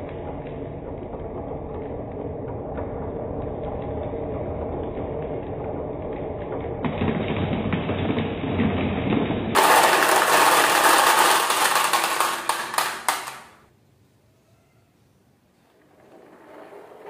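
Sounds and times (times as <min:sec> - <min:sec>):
marbles rattling on wooden tracks: 0:09.5 - 0:13.6, 0:15.8 - 0:17.0.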